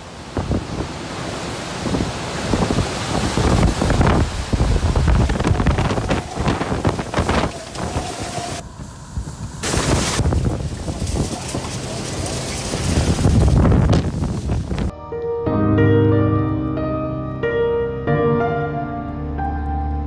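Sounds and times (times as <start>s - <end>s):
strong wind gusting: 0.0s - 14.9s
wind-driven rain: 0.0s - 14.9s.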